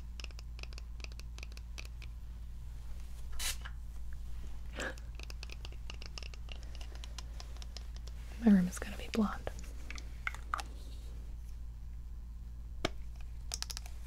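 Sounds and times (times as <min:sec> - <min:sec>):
spray bottle hiss: 0:03.3 - 0:03.7.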